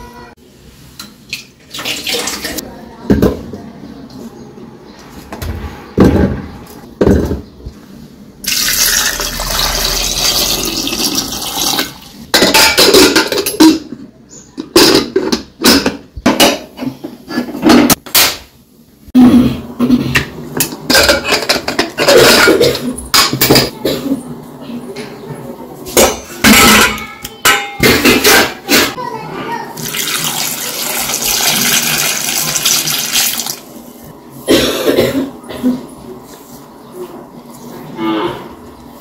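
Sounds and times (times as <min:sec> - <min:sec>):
water pouring: 0:01.7 - 0:02.6, 0:08.4 - 0:12.2, 0:29.8 - 0:33.6.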